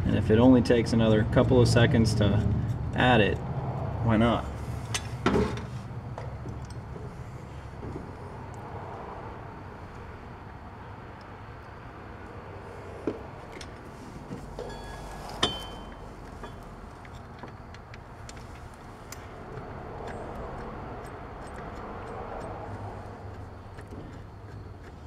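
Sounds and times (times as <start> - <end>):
metal tools clinking: 14.6 - 19.4.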